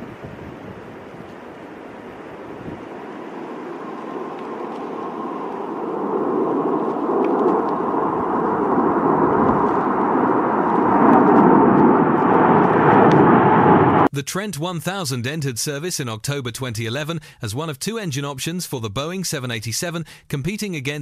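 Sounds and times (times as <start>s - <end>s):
jet engines passing overhead: 0.0s - 14.1s.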